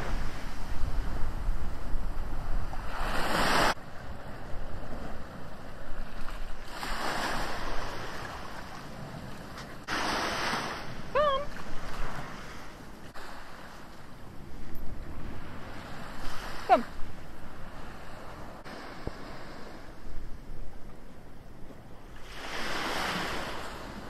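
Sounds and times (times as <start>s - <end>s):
wind on microphone: 0.0s - 24.0s
waves washing onto sandy beach: 2.7s - 14.4s, 22.2s - 24.0s
hiss of surf: 9.8s - 11.0s.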